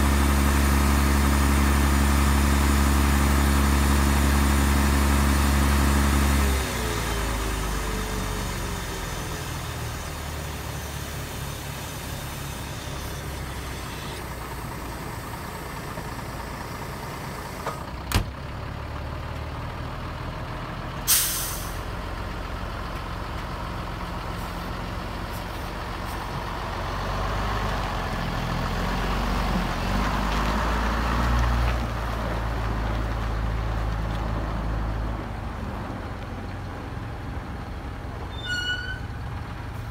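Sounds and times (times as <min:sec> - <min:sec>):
truck diesel engine idling: 0:06.7 - 0:28.9
air brake hiss: 0:21.1 - 0:21.9.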